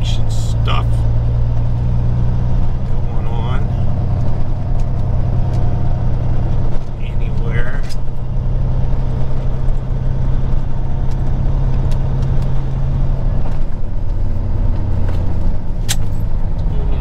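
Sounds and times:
truck diesel engine running: 0:00.0 - 0:17.0
sharp click: 0:15.8 - 0:16.2.

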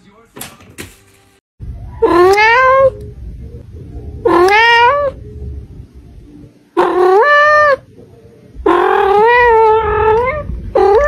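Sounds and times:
cat meowing: 0:02.0 - 0:03.0, 0:04.2 - 0:05.2, 0:06.8 - 0:07.8, 0:08.6 - 0:11.0.

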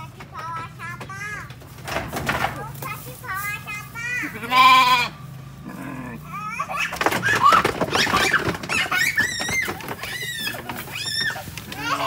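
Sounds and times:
knocking and clatter: 0:00.0 - 0:02.8, 0:06.8 - 0:12.0
goats bleating: 0:04.2 - 0:06.4, 0:09.4 - 0:12.0.

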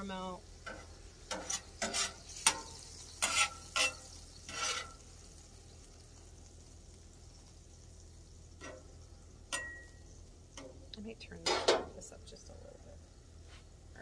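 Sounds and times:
food sizzling faintly: 0:00.0 - 0:14.0
metal spatula scraping griddle: 0:00.6 - 0:05.4.

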